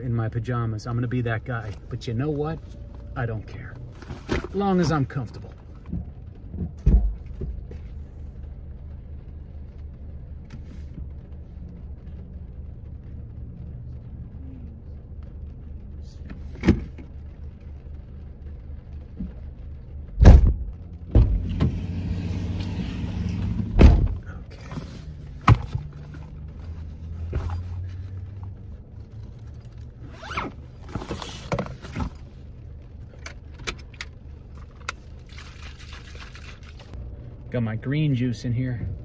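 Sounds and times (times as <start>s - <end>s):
car doors thudding shut: 20.2s - 22.0s, 23.3s - 24.4s
backpack rustling: 24.5s - 28.2s, 30.1s - 32.3s.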